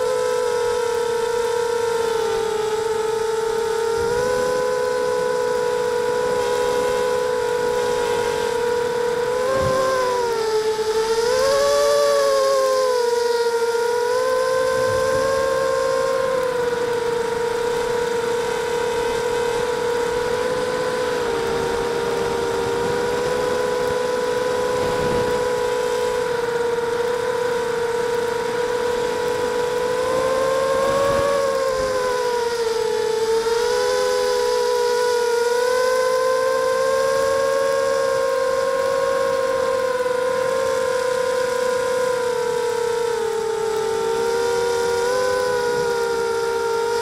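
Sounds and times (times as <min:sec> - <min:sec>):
quadcopter motors whining: 0:00.0 - 0:47.0.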